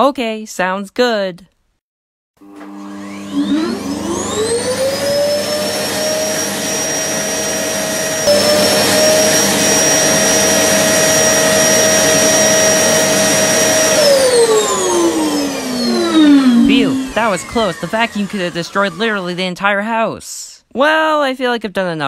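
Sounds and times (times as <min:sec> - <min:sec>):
vacuum cleaner motor whining: 0:02.4 - 0:19.7.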